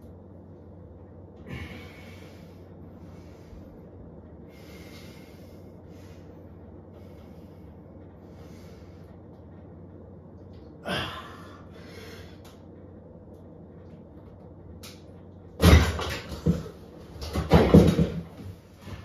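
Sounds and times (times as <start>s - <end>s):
man breathing hard: 1.4s - 9.3s, 10.8s - 12.6s.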